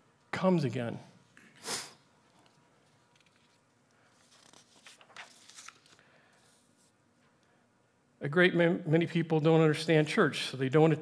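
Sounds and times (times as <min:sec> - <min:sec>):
short hiss: 0:01.6 - 0:02.0
paper rustling: 0:02.4 - 0:06.9.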